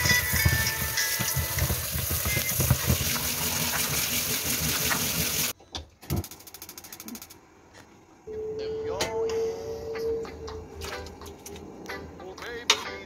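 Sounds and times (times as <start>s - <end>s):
food sizzling in a pan: 0.0s - 5.5s.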